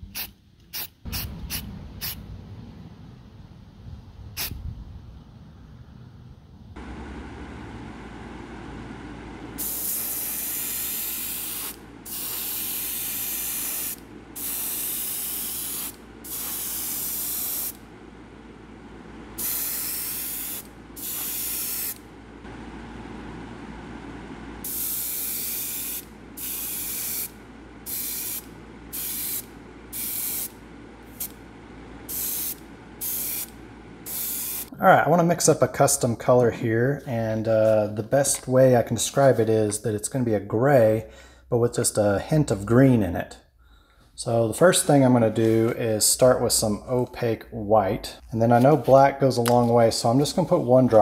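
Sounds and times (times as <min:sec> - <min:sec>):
steady low hum: 0:00.0 - 0:51.0
spray can hissing bursts: 0:00.1 - 0:02.2, 0:09.6 - 0:17.8, 0:19.4 - 0:22.0, 0:24.6 - 0:31.4, 0:32.1 - 0:34.7.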